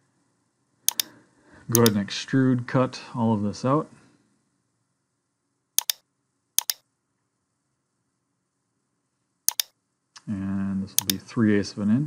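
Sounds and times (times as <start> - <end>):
computer mouse clicking: 0.9 - 1.1, 1.7 - 2.0, 5.8 - 6.0, 6.6 - 6.8, 9.5 - 9.7, 11.0 - 11.2.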